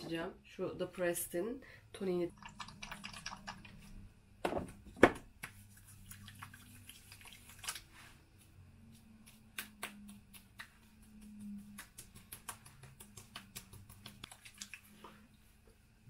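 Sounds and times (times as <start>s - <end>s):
light taps patting face: 9.2s - 14.4s.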